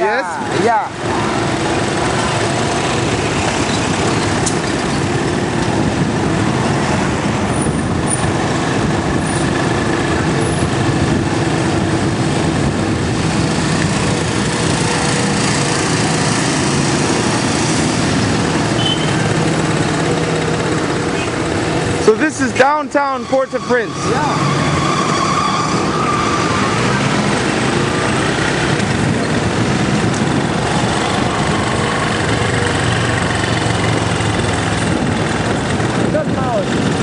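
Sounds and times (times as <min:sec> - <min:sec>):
vehicle engine and road noise: 0:00.0 - 0:37.0.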